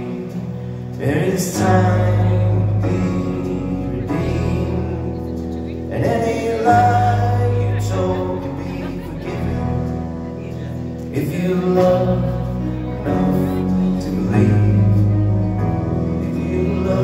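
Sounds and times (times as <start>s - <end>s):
rock band playing slow song: 0.0s - 17.0s.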